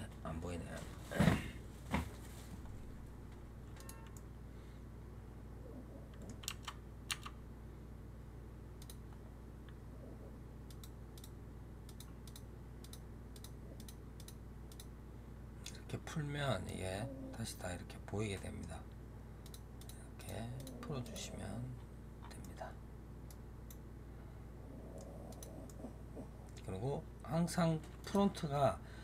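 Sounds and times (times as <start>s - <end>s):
steady low hum: 0.0s - 29.0s
keyboard and mouse clicking: 6.1s - 7.4s.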